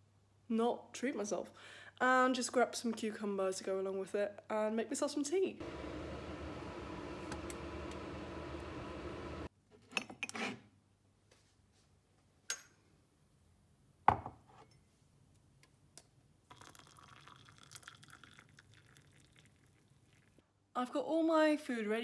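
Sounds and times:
steady hum: 5.6 - 9.5
hot water pouring into a mug: 16.5 - 20.4.

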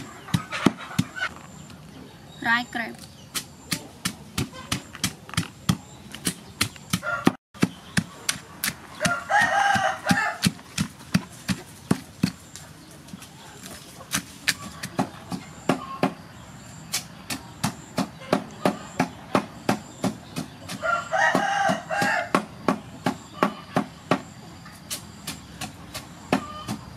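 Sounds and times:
wooden pestle pounding in mortar: 0.0 - 1.2, 3.3 - 12.4, 17.3 - 24.3
rooster crowing: 7.0 - 7.4, 9.0 - 10.5, 20.7 - 22.4.

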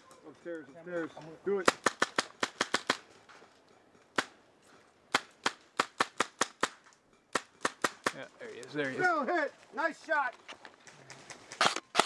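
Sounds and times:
airsoft rifle shots: 1.6 - 3.0, 11.6 - 12.0.

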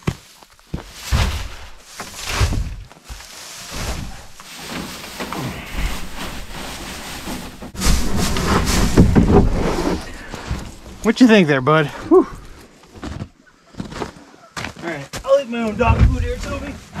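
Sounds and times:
straw rustling and crunching: 0.0 - 13.2.

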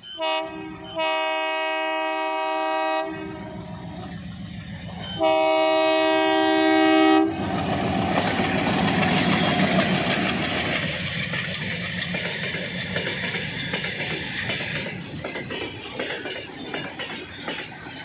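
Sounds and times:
diesel locomotive engine rumble: 0.0 - 18.0
train wheels clacking over rail joints: 4.8 - 18.0.

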